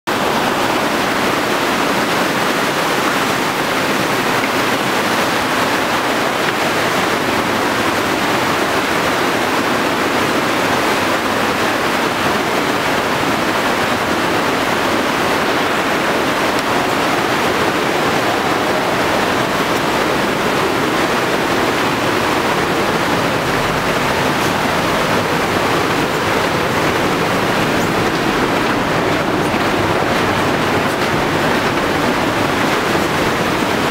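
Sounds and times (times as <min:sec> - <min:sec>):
mountain torrent rushing: 0:00.1 - 0:33.9.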